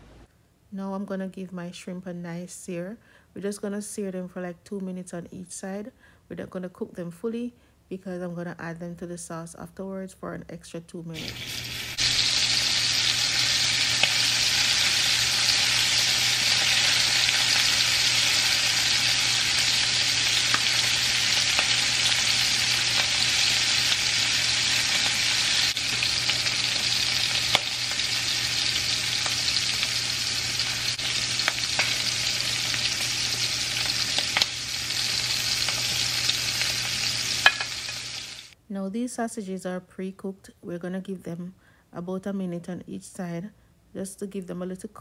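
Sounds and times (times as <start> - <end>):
shrimp sizzling in frying pan: 11.2 - 38.6
tongs clicking against pan: 37.4 - 37.7.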